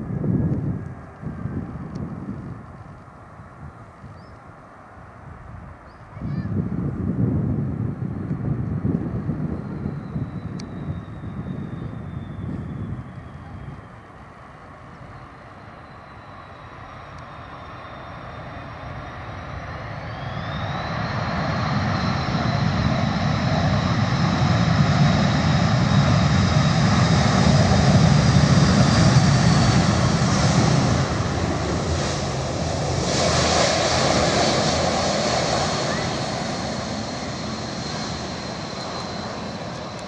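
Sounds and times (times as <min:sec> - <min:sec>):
jet engines whining: 0:08.5 - 0:40.0.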